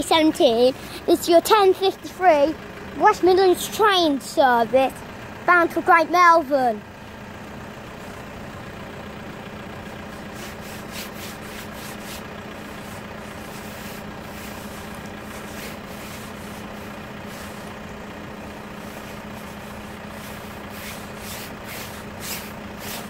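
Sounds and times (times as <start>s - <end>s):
vehicle engine idling: 0.0s - 23.0s
brief hisses: 20.3s - 23.0s.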